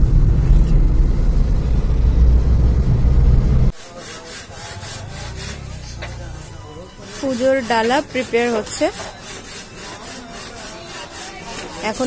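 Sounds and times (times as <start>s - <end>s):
car road and engine rumble: 0.0s - 3.7s.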